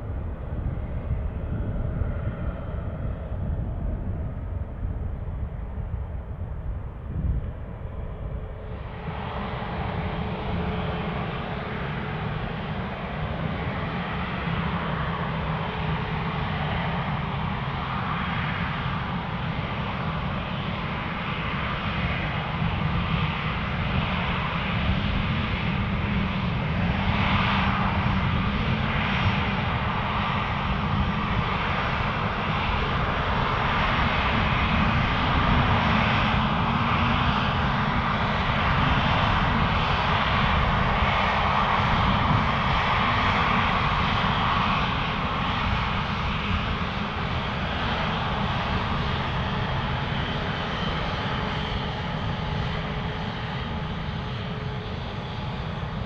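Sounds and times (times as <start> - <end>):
jet engines running: 0.0 - 56.0.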